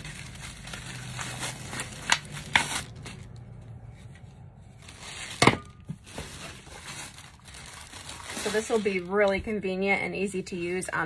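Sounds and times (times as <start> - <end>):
plastic packaging crinkling: 0.0 - 3.5, 4.7 - 9.5.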